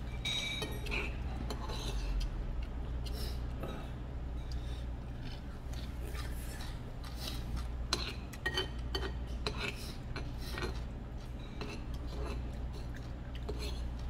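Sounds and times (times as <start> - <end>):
utensils clinking on ceramic bowl: 0.0 - 2.2.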